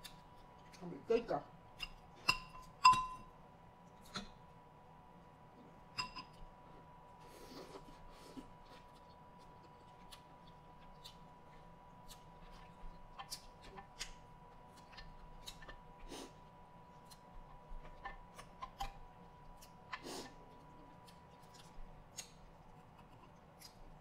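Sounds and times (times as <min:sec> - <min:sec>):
spoon clinking on glass bowl: 0:02.3 - 0:03.2.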